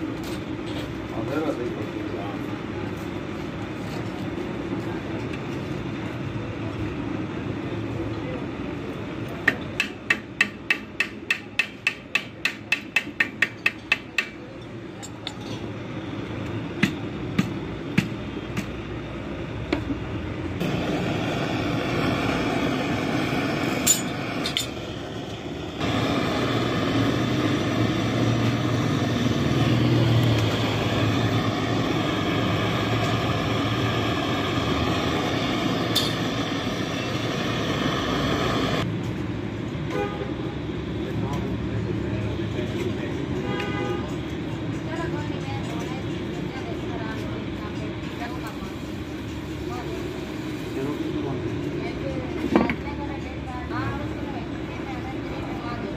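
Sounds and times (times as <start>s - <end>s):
nozzle hissing: 20.6s - 38.8s.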